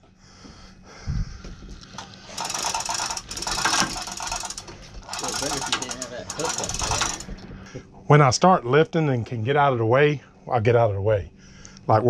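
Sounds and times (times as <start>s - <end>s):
hoist chain rattling: 2.0s - 7.4s
hoist clicking rapidly: 2.0s - 7.4s.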